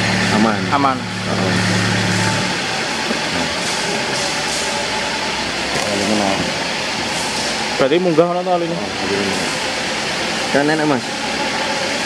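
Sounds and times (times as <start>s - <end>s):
low hum: 0.0s - 7.1s
car engine idling: 0.0s - 11.6s.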